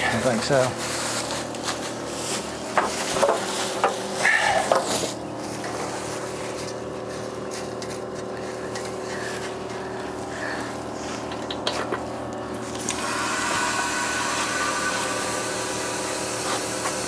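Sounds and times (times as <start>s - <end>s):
motor humming: 0.0s - 17.0s
air hissing: 12.6s - 17.0s.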